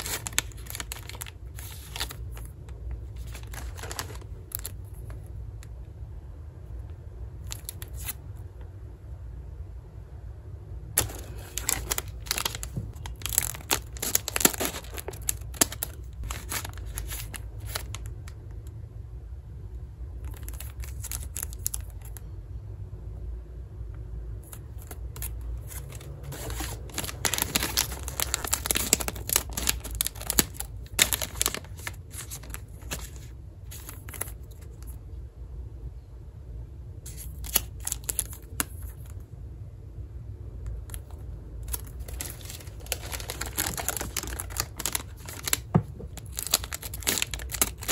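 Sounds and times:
plastic wrappers crinkling: 0.0s - 5.2s, 11.0s - 18.4s, 20.2s - 22.2s, 24.5s - 35.0s, 37.1s - 39.2s, 40.8s - 47.9s.

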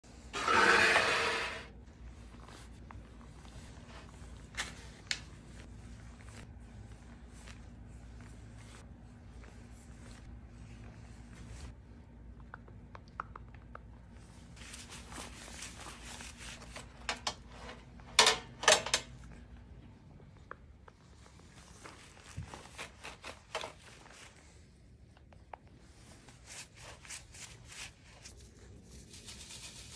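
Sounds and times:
wet rubbing of handled meat: 14.5s - 17.0s.

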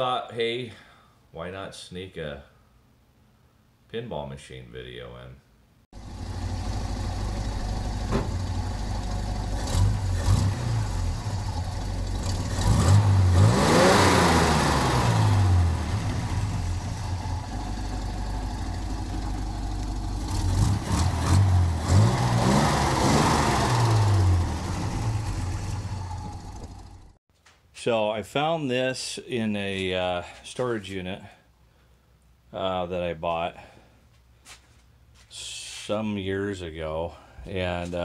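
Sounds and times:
vehicle engine idling and revving: 6.0s - 27.2s.

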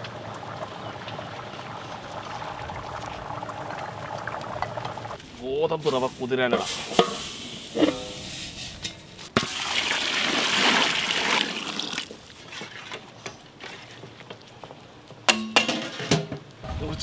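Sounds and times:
water pouring and splashing: 0.0s - 5.2s, 6.6s - 14.2s.

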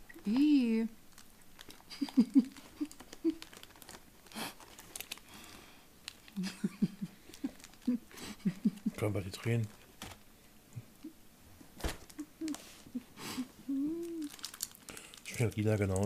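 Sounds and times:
stifled giggling: 1.9s - 3.4s, 6.4s - 9.2s
noisy breath: 5.2s - 6.0s, 12.5s - 13.6s.

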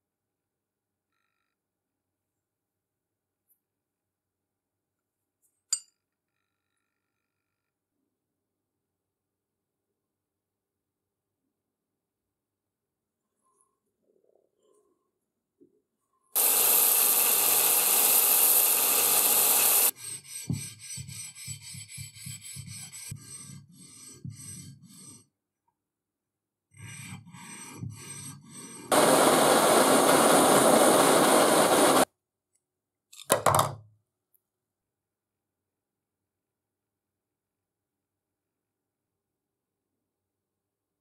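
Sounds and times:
loud steady hissing noise: 16.4s - 19.9s, 28.9s - 32.0s
stone rasping on steel plate: 16.4s - 25.3s, 26.7s - 29.0s.

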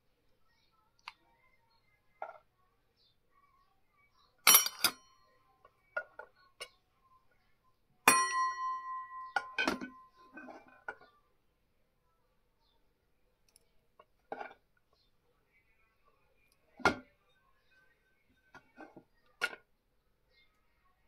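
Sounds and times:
ladle clinking against steel pot: 4.5s - 5.0s, 8.1s - 10.5s.

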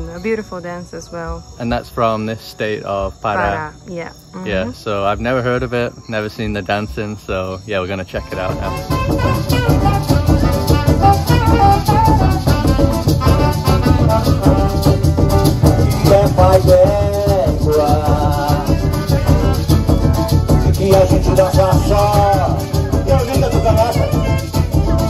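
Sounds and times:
guitar: 0.0s - 25.0s
maracas shaking: 8.2s - 25.0s
hand drums: 8.3s - 25.0s.

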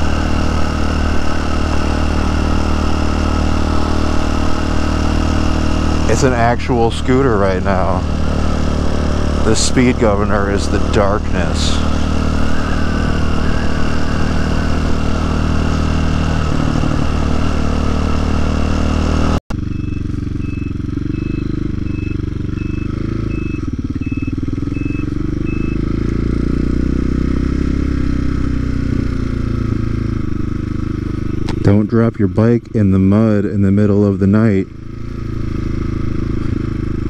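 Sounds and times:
motorcycle engine running: 0.0s - 37.0s
faint high beep: 11.4s - 15.4s, 19.6s - 25.8s
rushing wind: 11.8s - 18.7s.

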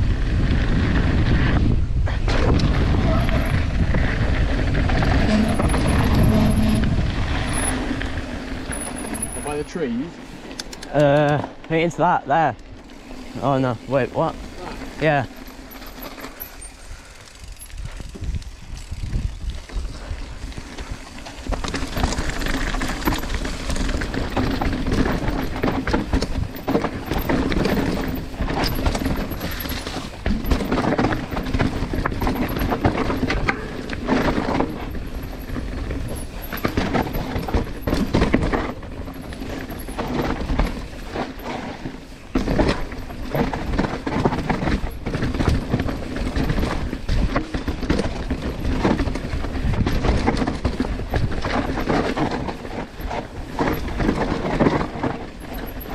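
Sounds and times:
bike clattering and rattling: 0.0s - 55.9s
bike tyres rumbling over dirt: 0.0s - 55.9s.

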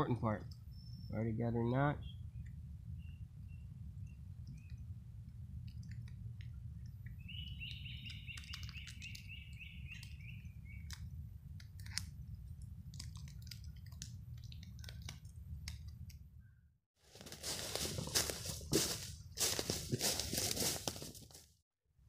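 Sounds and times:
songbird trilling: 7.1s - 10.9s.

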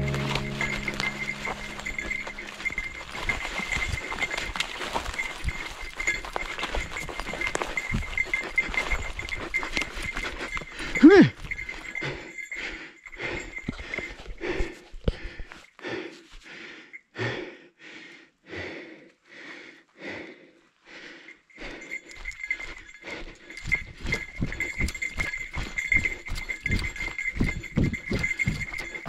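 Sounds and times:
footfalls on leaf-covered path: 0.0s - 7.8s
hard rhythmic breathing: 0.0s - 29.0s.

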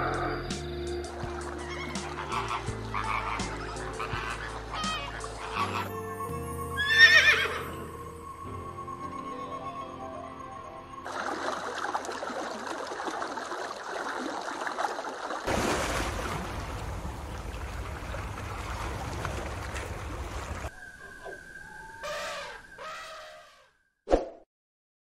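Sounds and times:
water lapping at shore: 1.0s - 5.8s, 11.1s - 20.7s
calls sliding in pitch: 21.9s - 23.7s.

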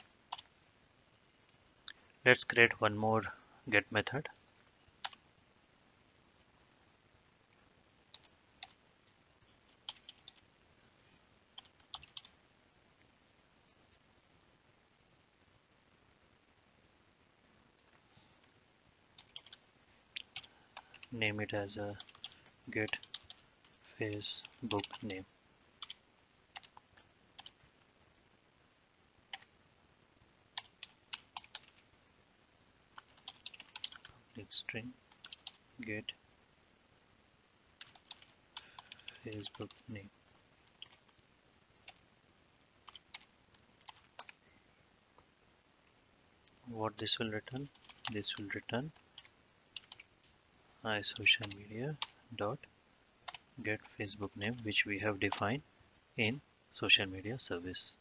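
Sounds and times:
computer keyboard keystrokes: 30.6s - 31.8s, 33.0s - 34.1s, 49.2s - 50.1s.

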